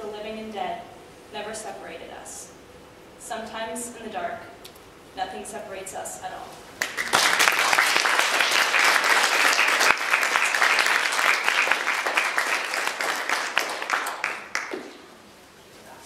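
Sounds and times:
audience applauding: 0:06.8 - 0:15.1.

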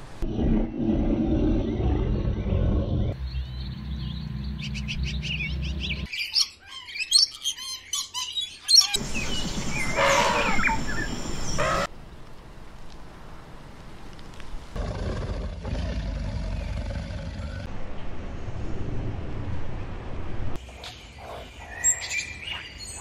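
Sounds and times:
low rumble: 0:00.2 - 0:06.1.

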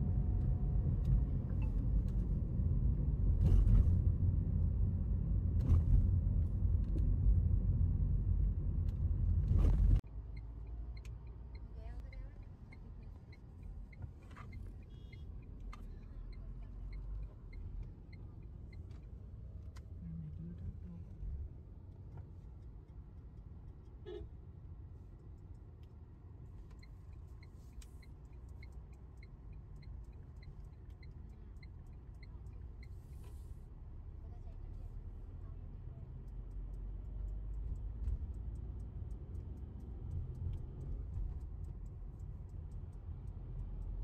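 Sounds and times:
car road noise rumble: 0:00.0 - 0:44.0.

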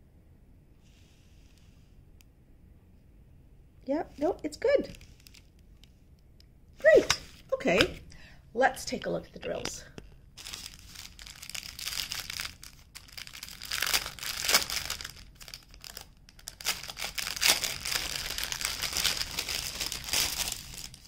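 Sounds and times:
plastic packaging crinkling: 0:04.2 - 0:05.6, 0:08.9 - 0:21.0.

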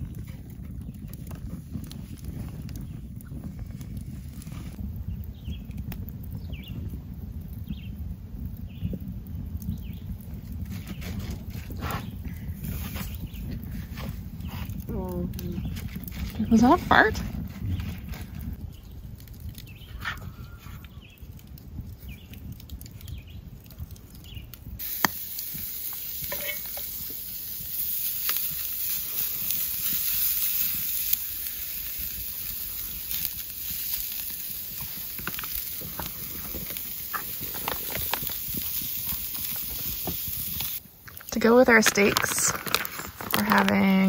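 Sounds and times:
cooking fire crackling: 0:00.0 - 0:44.0.

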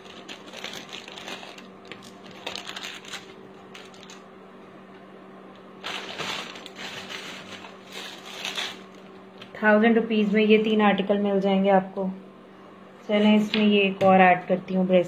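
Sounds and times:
plastic packets crinkling: 0:00.0 - 0:04.3, 0:05.8 - 0:09.5
faint steady hum: 0:00.0 - 0:15.0.

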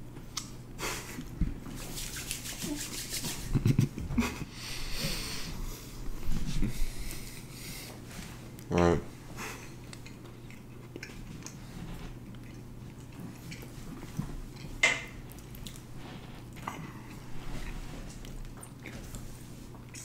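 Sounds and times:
steady low hum: 0:00.0 - 0:20.0
chewing dry biscuits: 0:09.4 - 0:20.0.

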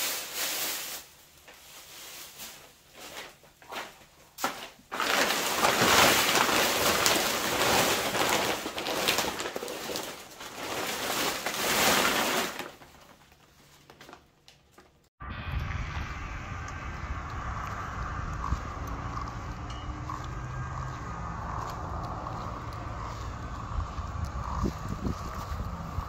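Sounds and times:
nylon fabric crinkling and rustling: 0:00.0 - 0:15.1.

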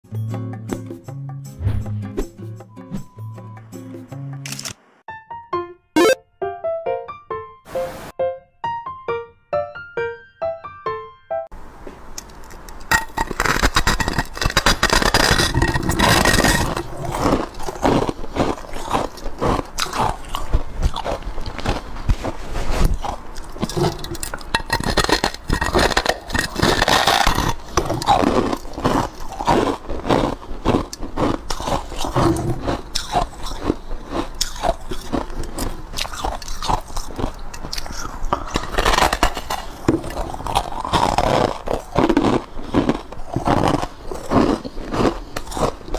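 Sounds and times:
person crunching ice: 0:12.2 - 0:45.9.

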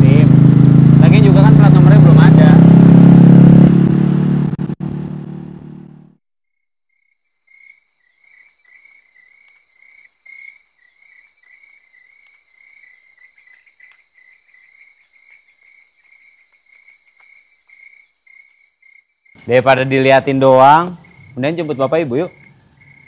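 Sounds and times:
crickets chirping: 0:06.9 - 0:23.0
high insect hum: 0:06.9 - 0:23.0.

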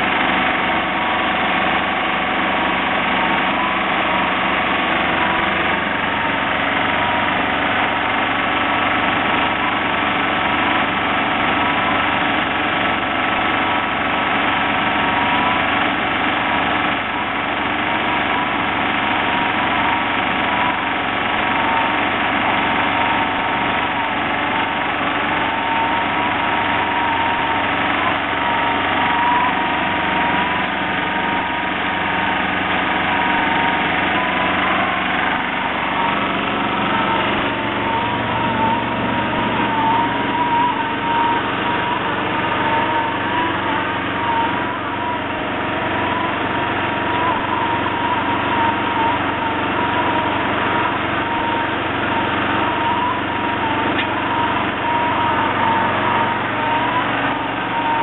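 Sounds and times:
machine engine running: 0:00.0 - 0:58.0
faint wavering whine: 0:18.2 - 0:58.0.

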